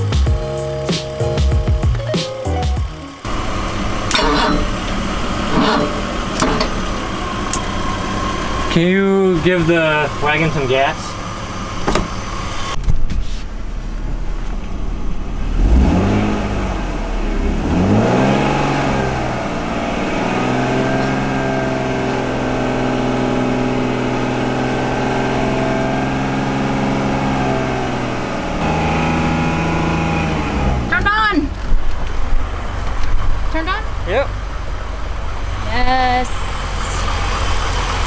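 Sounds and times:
car engine revving: 2.8 - 12.9, 13.5 - 38.0
knocks: 11.8 - 12.2.

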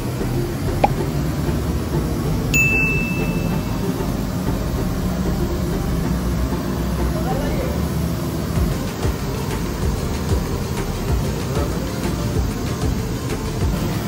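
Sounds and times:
low room rumble: 0.0 - 14.0
short high beep: 2.6 - 3.8.

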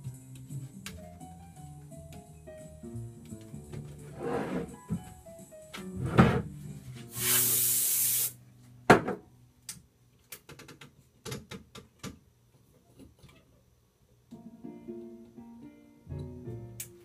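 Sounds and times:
steady hiss: 7.0 - 8.4.

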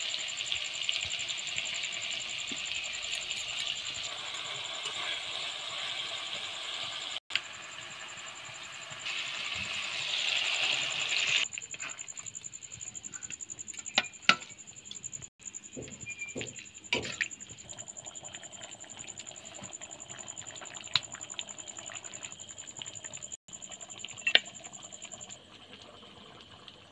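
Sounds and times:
curry bubbling and simmering: 15.8 - 26.9.

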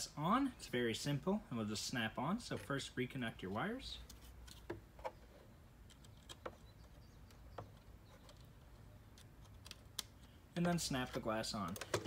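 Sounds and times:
faint clicks of wire connectors: 7.2 - 12.0.

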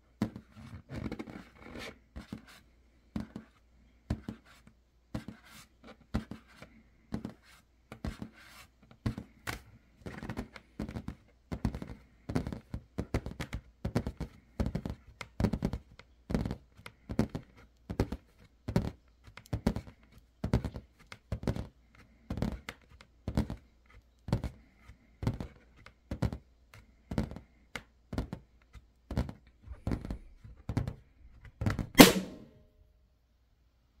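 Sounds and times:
balloon popping: 32.0 - 32.6.

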